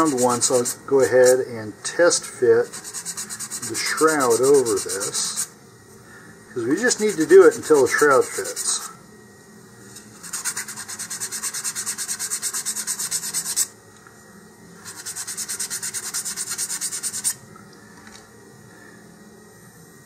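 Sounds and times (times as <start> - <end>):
sandpaper rubbing on cardboard: 0.0 - 1.4, 2.1 - 5.5, 6.7 - 8.9, 10.2 - 13.7, 14.8 - 17.4.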